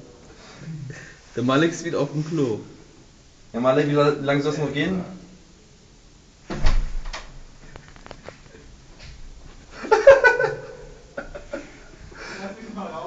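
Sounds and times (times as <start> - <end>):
heavy thud: 6.5 - 7.2.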